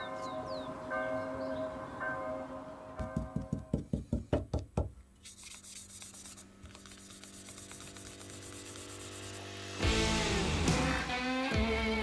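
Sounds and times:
block rubbing on knife blade: 5.2 - 9.5.

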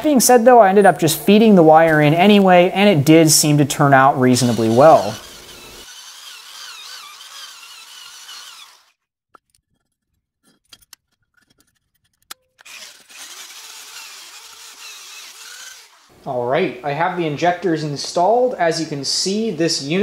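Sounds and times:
electric drill grinding steel: 4.1 - 9.0, 12.6 - 16.2.

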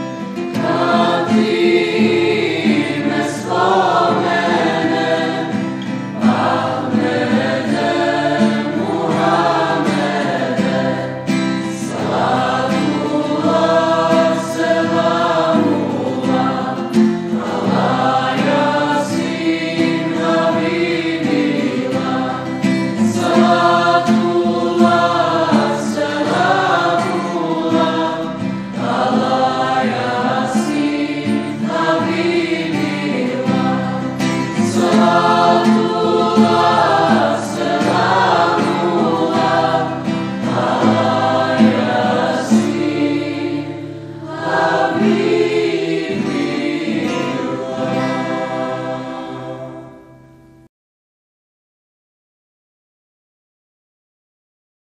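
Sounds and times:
mixed choir singing in harmony: 0.0 - 50.3
acoustic guitar: 0.0 - 50.7.

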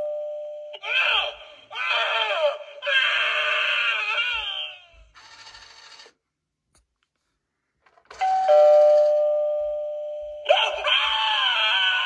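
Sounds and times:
recorded shrieking voice effect: 0.8 - 5.1, 10.5 - 12.0
two-note doorbell chime: 8.2 - 10.4.

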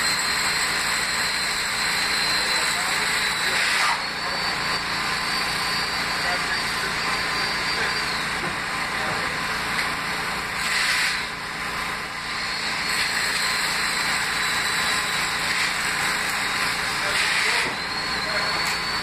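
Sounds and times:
high electric whine: 0.0 - 19.0
short hissing surge: 10.6 - 11.2.

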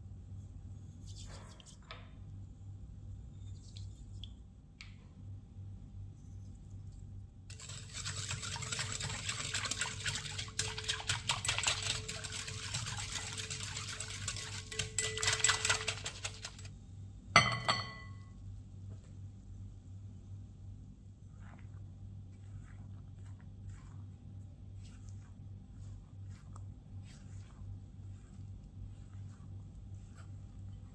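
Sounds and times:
whisk clinking in glass bowl: 7.5 - 16.7, 17.4 - 18.3
bowl knocking on glass rim: 17.4 - 18.3.

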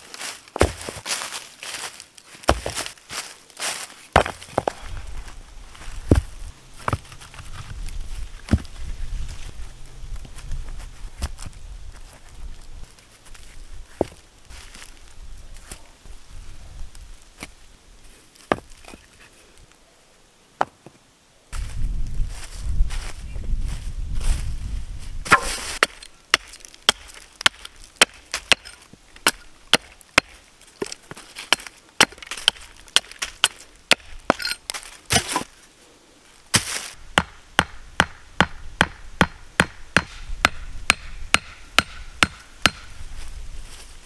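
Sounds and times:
hatchet chopping wood: 0.6 - 1.0, 2.5 - 2.8, 4.2 - 4.7, 25.3 - 34.5, 36.6 - 42.9.

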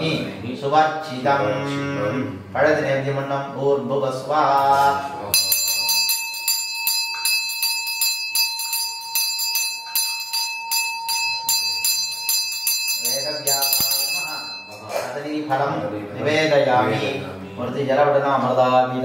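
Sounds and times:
hand bell ringing: 5.4 - 15.0.

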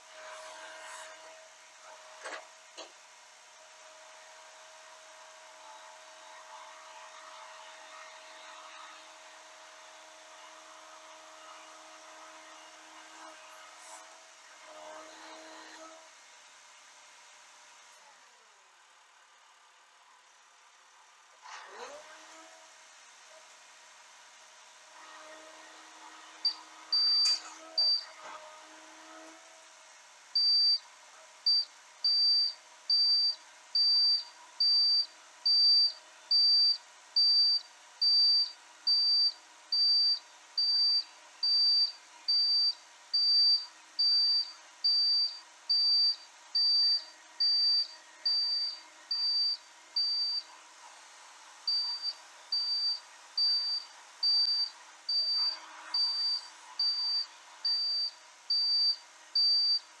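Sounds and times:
high-pitched electronic warning beeper: 31.5 - 50.4, 51.7 - 59.8.

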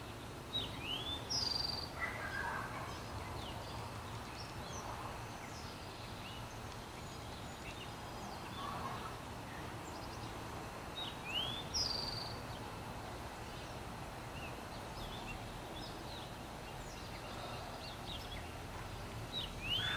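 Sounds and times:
bird chirps: 11.0 - 12.5, 19.3 - 19.9.

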